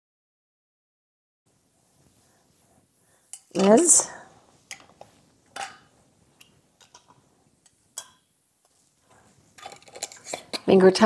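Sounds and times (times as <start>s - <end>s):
metal lids clicking on glass jars: 3.4s - 4.0s, 5.6s - 5.9s, 9.6s - 11.0s.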